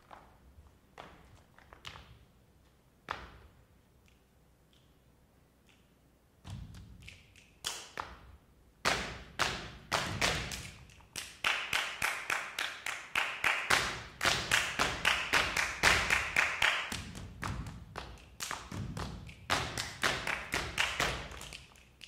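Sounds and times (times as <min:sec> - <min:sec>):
shoes tapping on stage floor: 0:00.0 - 0:03.6, 0:13.7 - 0:21.8.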